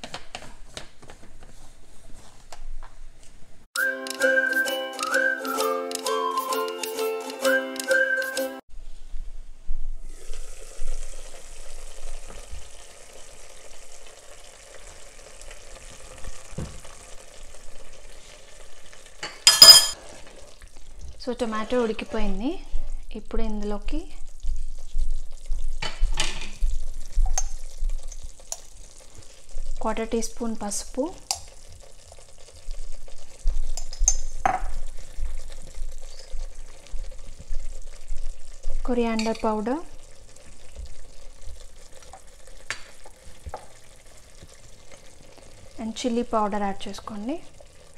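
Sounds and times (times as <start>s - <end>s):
sauce simmering and sputtering: 10.0s - 47.9s.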